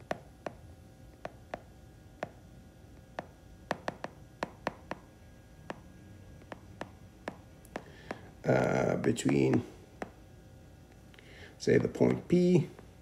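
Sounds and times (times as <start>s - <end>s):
stylus tapping on tablet screen: 0.0s - 0.6s, 1.2s - 2.4s, 3.1s - 8.3s, 9.1s - 10.2s.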